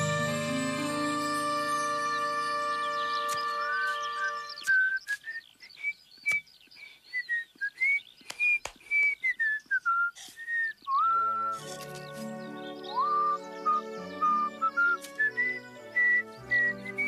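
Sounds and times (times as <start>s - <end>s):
music with held note: 0.0s - 4.6s
man whistling: 4.6s - 6.5s, 7.2s - 11.7s, 12.9s - 17.0s.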